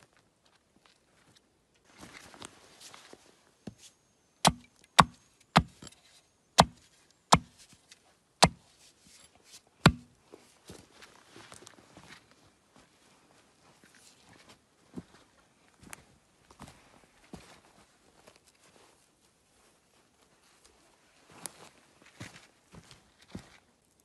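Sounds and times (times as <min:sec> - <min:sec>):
axe chopping wood: 0:04.4 - 0:05.8, 0:06.6 - 0:07.5, 0:09.8 - 0:10.1.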